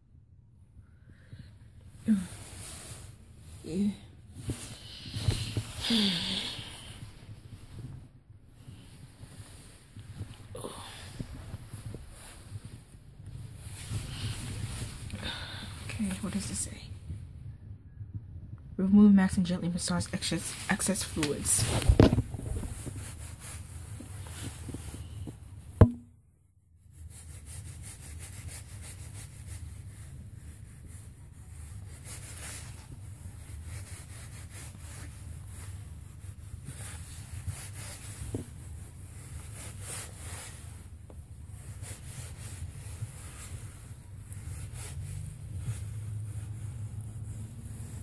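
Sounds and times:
sharp knock: 25.8 - 26.1.

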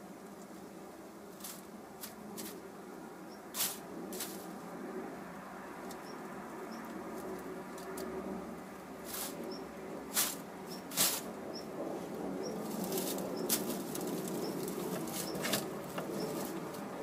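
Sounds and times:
straw rustling: 1.3 - 2.6, 3.6 - 4.6, 9.0 - 9.4, 10.1 - 11.4, 12.0 - 17.0.

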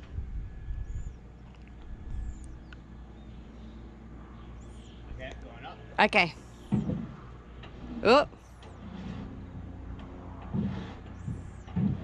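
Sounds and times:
low rumble: 0.0 - 12.0
dull wooden knocks: 6.7 - 8.0, 9.9 - 12.0.

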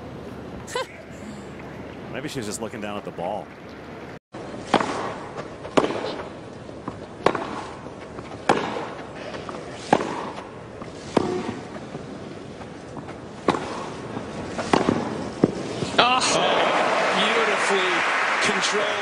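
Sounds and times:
tennis racquet hitting ball: 4.6 - 6.3, 7.2 - 7.8, 8.4 - 11.8, 13.4 - 15.6.

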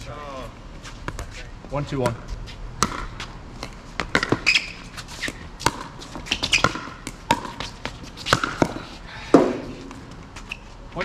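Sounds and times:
ball bouncing on court: 2.8 - 10.0.

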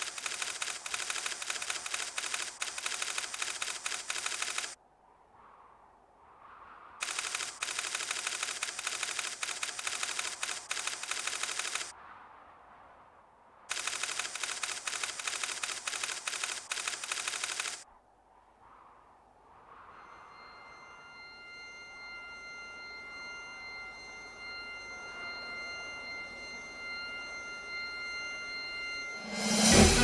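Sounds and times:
typewriter keystrokes clatter: 0.0 - 4.8, 13.7 - 17.8.

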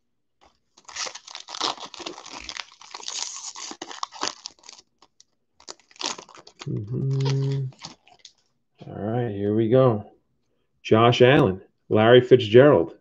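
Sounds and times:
foil wrapper tearing and crinkling: 0.4 - 8.4.

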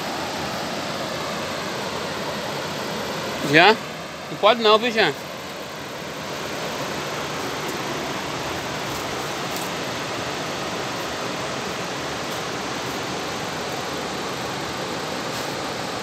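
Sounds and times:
whitewater rushing over rocks: 0.0 - 16.0.

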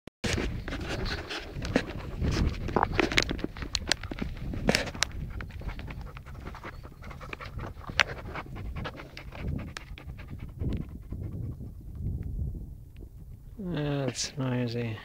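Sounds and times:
small crisp clicks and crunches: 0.3 - 6.3.

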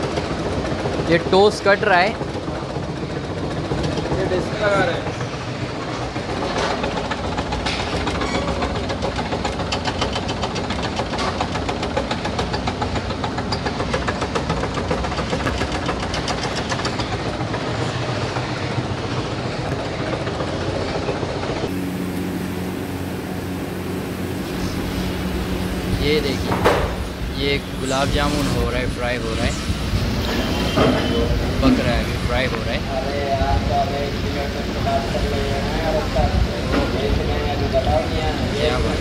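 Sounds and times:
bakery machinery running: 0.0 - 39.0
fast regular clattering: 6.2 - 20.7
low machine hum: 16.1 - 39.0.

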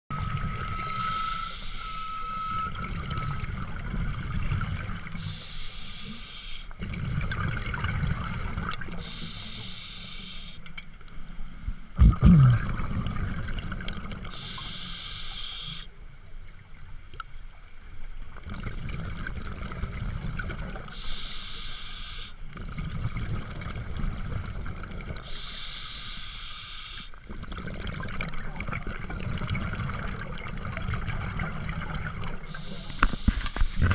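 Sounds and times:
breath hissing through regulator: 1.0 - 2.4, 5.2 - 6.7, 9.0 - 10.6, 14.3 - 16.0, 20.9 - 22.4, 25.2 - 27.2, 32.5 - 33.9
rumble of exhaled bubbles: 2.7 - 5.2, 6.8 - 9.1, 11.8 - 14.4, 18.3 - 20.9, 22.5 - 25.3, 27.3 - 33.9.

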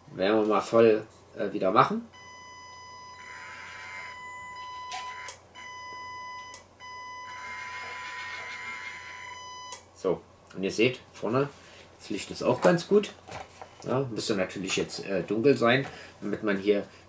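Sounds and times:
small electric motor whine: 2.9 - 5.4, 7.2 - 9.4.

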